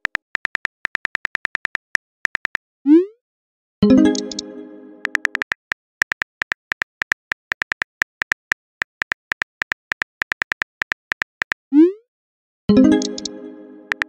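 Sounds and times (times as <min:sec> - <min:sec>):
phone keyboard typing clicks: 0:00.0 - 0:02.6, 0:04.0 - 0:04.4, 0:05.0 - 0:11.6, 0:12.9 - 0:14.0.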